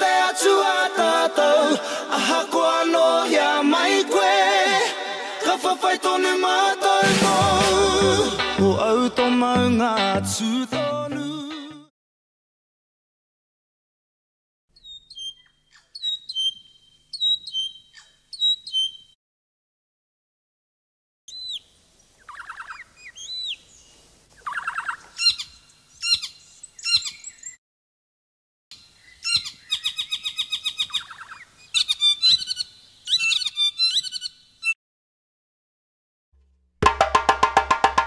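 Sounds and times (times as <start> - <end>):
bird calls with sweeping notes: 14.8 - 19.2, 21.3 - 27.6, 28.7 - 34.8
bird whistled phrases: 14.8 - 19.2, 29.1 - 34.4
bird chattering: 22.2 - 23.6, 24.4 - 27.5, 29.1 - 34.8.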